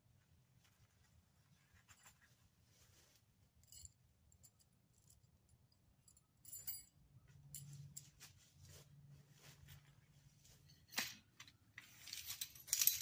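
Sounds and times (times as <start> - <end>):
faint clicks and rustles: 0.2 - 3.9.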